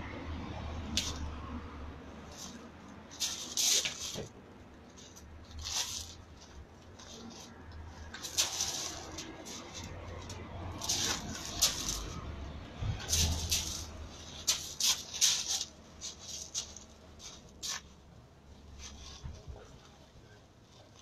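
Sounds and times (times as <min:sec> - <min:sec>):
feet crunching on gravel: 0:08.1 - 0:09.9.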